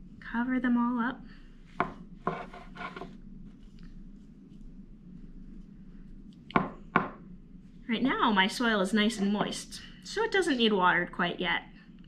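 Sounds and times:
fingers rubbing potting soil: 2.3 - 4.7.

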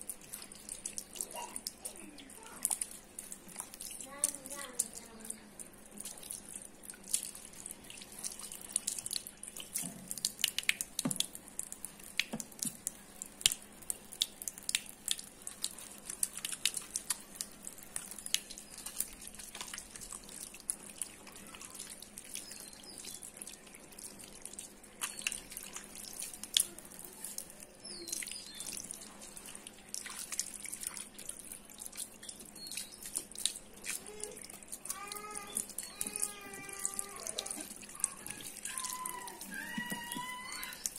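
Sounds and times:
tap water splashing into basin: 9.0 - 11.4, 12.2 - 13.6, 32.6 - 40.9.

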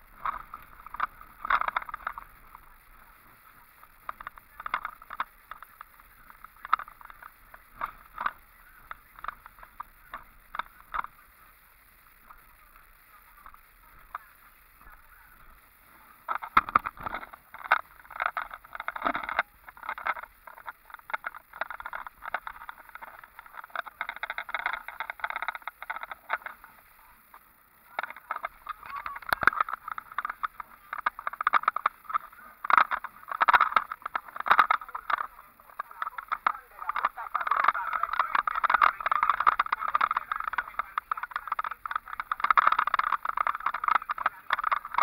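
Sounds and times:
vehicle rattling on gravel road: 27.9 - 45.0.

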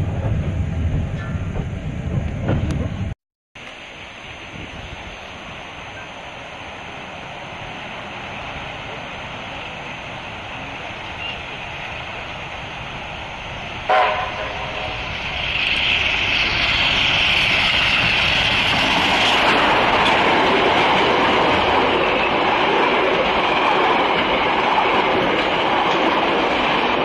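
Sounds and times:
train rumbling: 0.0 - 27.0
steam locomotive hiss: 3.6 - 22.7.

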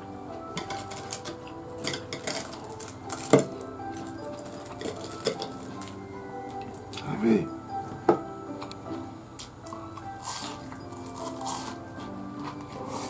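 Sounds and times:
soft background music: 0.0 - 13.0
chopsticks clicking on plates: 0.5 - 7.1.

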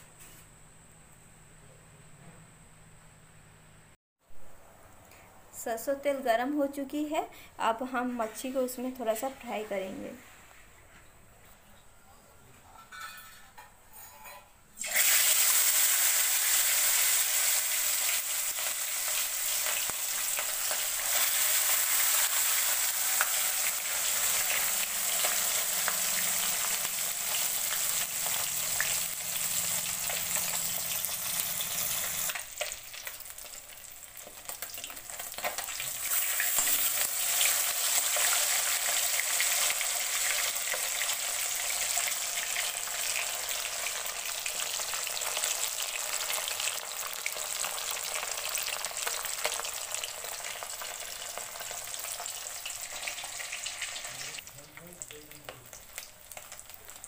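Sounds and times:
fish frying in hot oil: 14.8 - 57.0.

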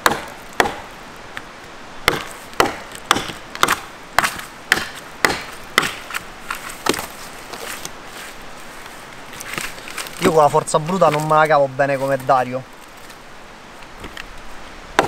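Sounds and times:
knife chopping into a branch: 0.0 - 0.9, 2.1 - 7.8.

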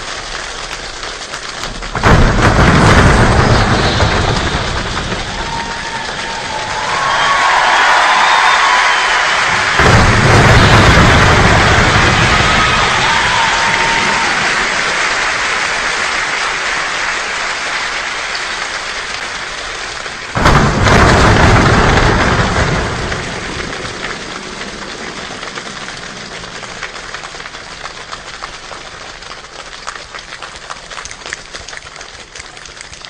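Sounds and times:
thunder crack and rumble: 0.0 - 16.3, 18.4 - 30.5
steady rain: 0.0 - 33.0
water drips: 24.1 - 33.0.

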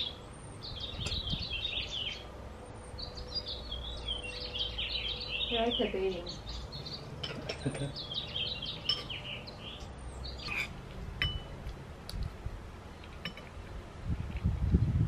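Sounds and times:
small birds chirping: 0.0 - 11.5
metal spoon clinking bowl: 10.5 - 11.5.

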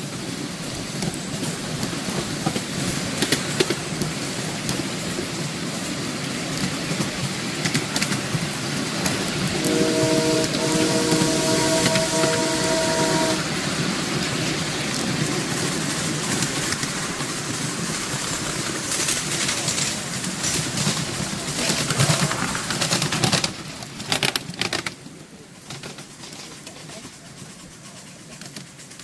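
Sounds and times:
train wheels clattering on rail: 0.0 - 29.0
train whistle: 9.4 - 13.9.

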